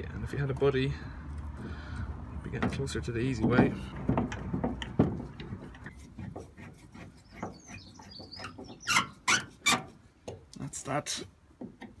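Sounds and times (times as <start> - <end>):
bird chirping: 6.9 - 9.4.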